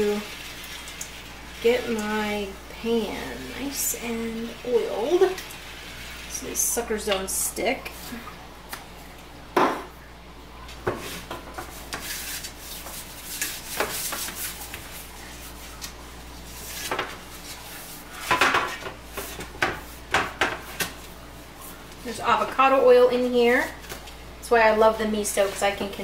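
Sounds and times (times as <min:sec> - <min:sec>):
scrapes on baking sheet: 0:11.0 - 0:15.6.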